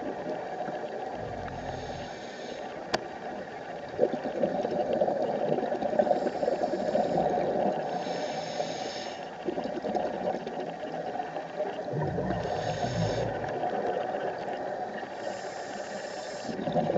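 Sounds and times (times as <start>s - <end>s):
underwater noise: 0.0s - 16.9s
exhaled bubbles burbling: 1.0s - 2.2s, 3.8s - 6.2s, 9.4s - 15.0s, 16.5s - 16.9s
regulator hissing inhalation: 1.6s - 2.7s, 7.9s - 9.3s, 12.4s - 13.5s, 15.2s - 16.6s.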